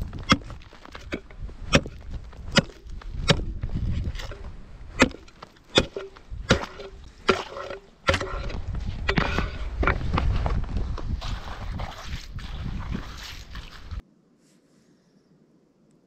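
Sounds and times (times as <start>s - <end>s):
ice chisel striking ice: 0.2s - 3.5s, 5.0s - 8.3s.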